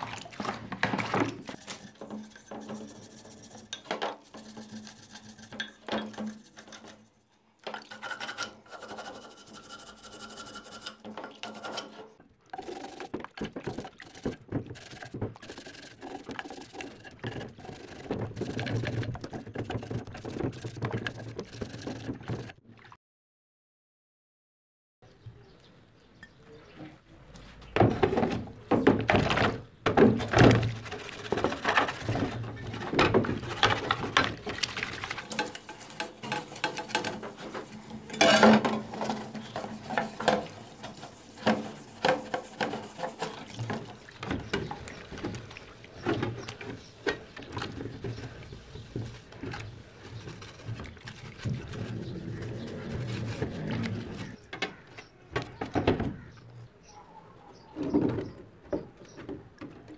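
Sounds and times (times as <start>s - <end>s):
brush scrubbing in water: 0.0s - 22.9s, 30.3s - 54.4s.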